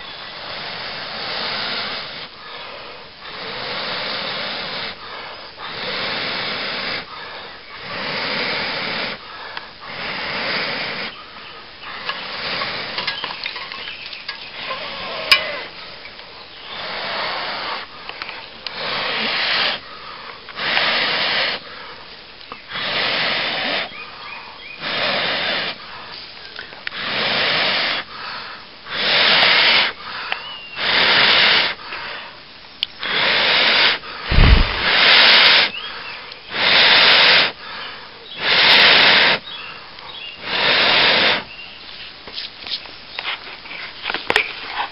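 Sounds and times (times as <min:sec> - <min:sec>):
breaths blown on ember: 0:33.6 - 0:35.7
tinder crackling: 0:34.3 - 0:35.3.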